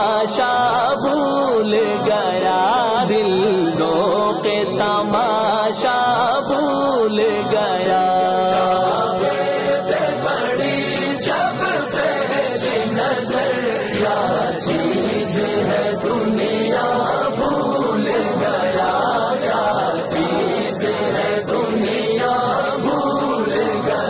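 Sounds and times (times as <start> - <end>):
male voices chanting a cappella: 0.0 - 24.0.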